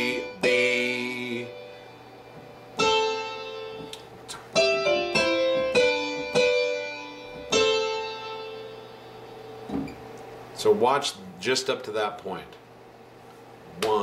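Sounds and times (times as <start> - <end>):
slow piano notes: 0.0 - 10.3.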